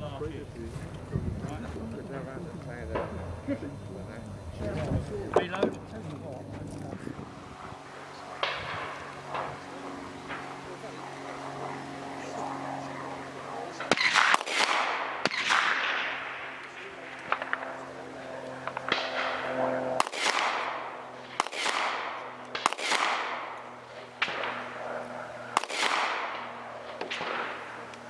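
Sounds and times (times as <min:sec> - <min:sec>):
pistol shots with rolling echo: 0:13.8 - 0:17.7, 0:18.6 - 0:28.0.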